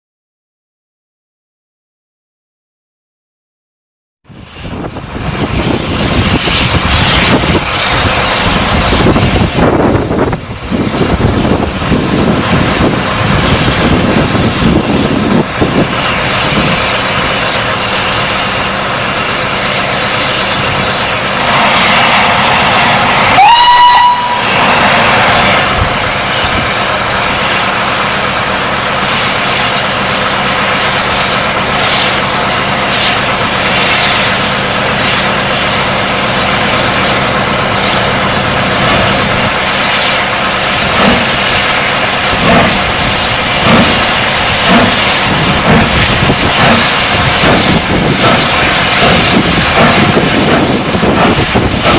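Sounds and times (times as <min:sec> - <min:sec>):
steam hissing from locomotive: 0:04.3 - 0:51.9
steam whistle blast: 0:21.4 - 0:25.8.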